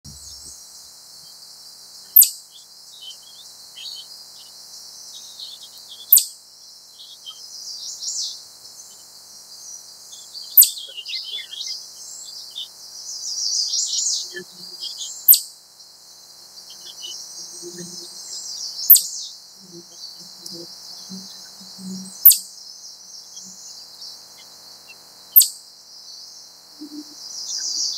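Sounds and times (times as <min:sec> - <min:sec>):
small birds chirping: 0:00.0 - 0:27.9
chipmunk chip calls: 0:02.1 - 0:06.4, 0:10.1 - 0:15.6, 0:16.6 - 0:22.6, 0:23.2 - 0:25.6.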